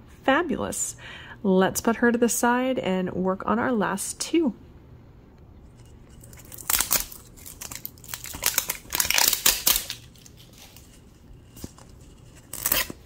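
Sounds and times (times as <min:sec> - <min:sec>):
paper packaging crinkling: 0:06.1 - 0:13.0.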